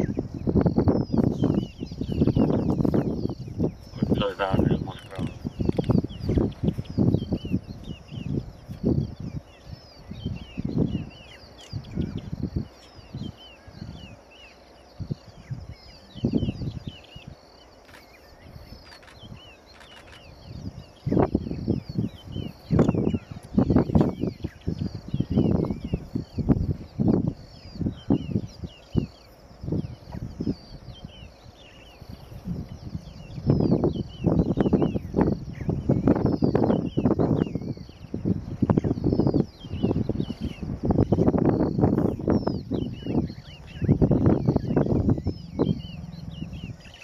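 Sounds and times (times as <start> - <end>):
small birds chirping: 0.0 - 47.0.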